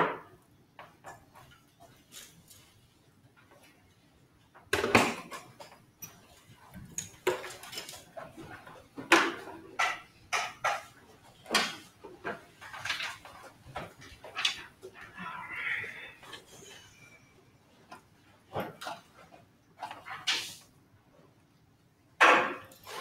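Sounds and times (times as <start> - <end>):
knocks and clattering: 4.5 - 15.0.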